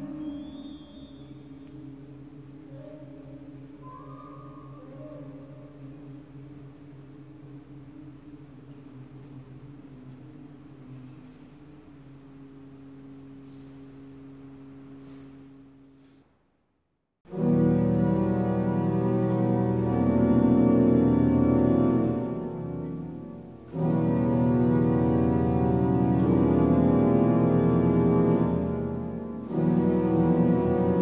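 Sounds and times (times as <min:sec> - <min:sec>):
pipe organ playing: 0:17.3 - 0:31.0.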